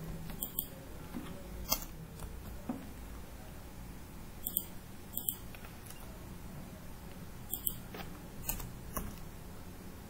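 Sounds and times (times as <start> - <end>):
faint room hum: 0.0 - 10.0
mouse and keyboard clicks: 0.3 - 0.7, 4.4 - 6.0, 7.5 - 7.8.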